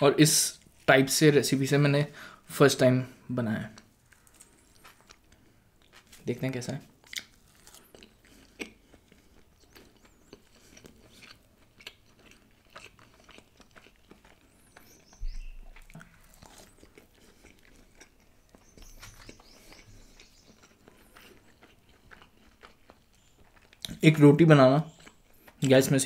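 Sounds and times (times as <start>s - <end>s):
wet chewing mouth clicks: 7.0s - 24.0s.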